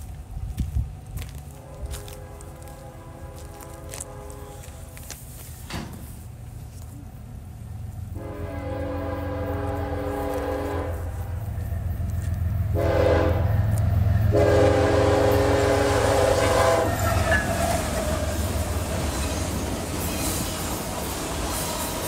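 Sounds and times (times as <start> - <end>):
locomotive engine rumble: 0.0 - 22.0
locomotive air horn: 1.5 - 5.2, 8.1 - 11.3, 12.7 - 18.4
freight cars rolling: 9.3 - 22.0.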